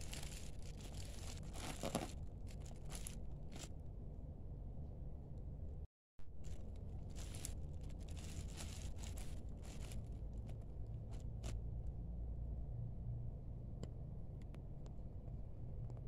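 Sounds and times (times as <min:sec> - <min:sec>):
plastic bag crinkling: 0:00.0 - 0:03.7, 0:06.3 - 0:11.5
steady low hum: 0:00.0 - 0:16.0.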